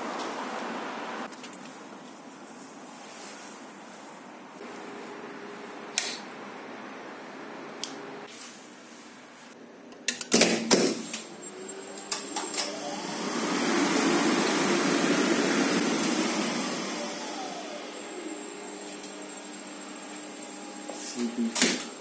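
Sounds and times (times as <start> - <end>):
lift motor whine: 11.2 - 22.0.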